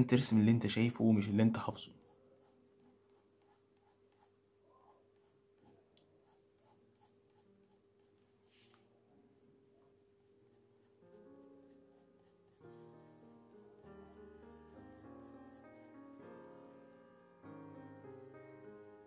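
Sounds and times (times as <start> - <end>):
pencil scratching on paper: 1.2 - 8.8, 9.8 - 17.4
soft music with held notes: 11.0 - 19.0.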